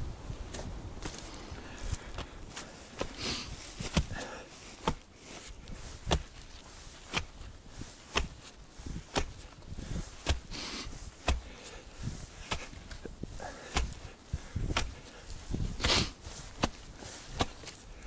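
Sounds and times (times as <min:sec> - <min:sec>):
axe chopping wood: 0:08.1 - 0:08.4, 0:09.1 - 0:09.4, 0:11.2 - 0:11.6, 0:12.4 - 0:12.8, 0:13.5 - 0:15.0, 0:16.6 - 0:17.8.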